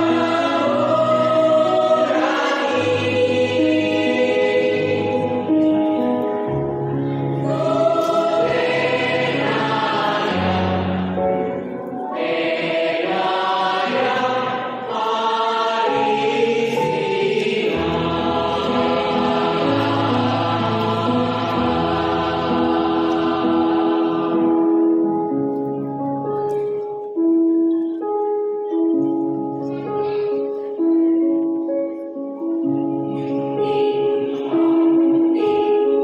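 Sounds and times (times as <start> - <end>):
mixed choir singing: 0.0 - 6.2, 7.2 - 25.2, 33.6 - 35.9.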